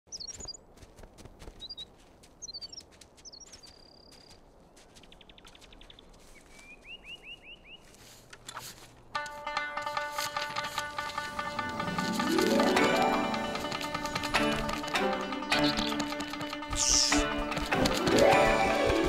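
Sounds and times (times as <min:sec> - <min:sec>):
small bird chirping and trilling: 0:00.1 - 0:00.6, 0:01.5 - 0:07.9
footsteps crunching in snow: 0:00.2 - 0:15.0, 0:15.8 - 0:19.0.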